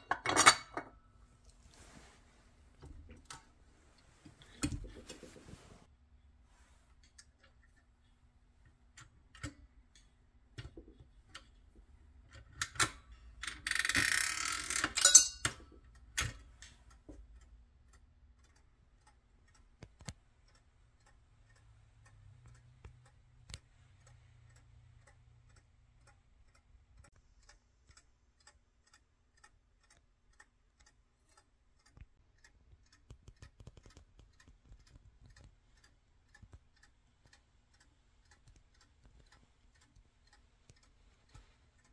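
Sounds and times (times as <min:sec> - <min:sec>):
clockwork timer ticking: 0:07.0 - 0:41.9
metal clicking and rasping mechanism: 0:12.3 - 0:16.9.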